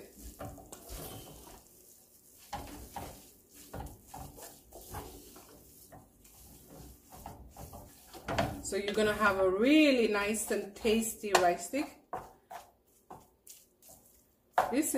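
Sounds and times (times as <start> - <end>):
wooden spoon knocking pot: 7.2 - 9.3, 10.8 - 13.3, 14.5 - 14.9.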